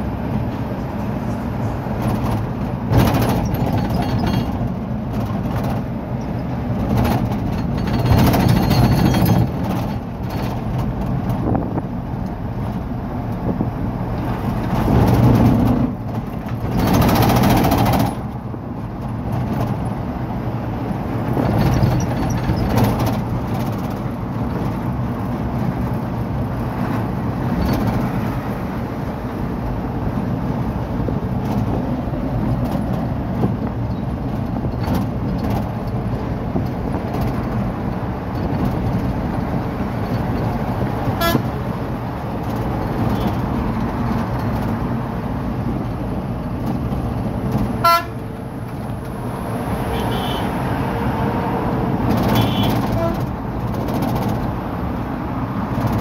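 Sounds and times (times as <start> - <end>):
vehicle engine and road noise: 0.0 - 56.0
vehicle horn: 41.2 - 41.5, 47.8 - 48.2, 49.8 - 50.6, 52.2 - 53.3.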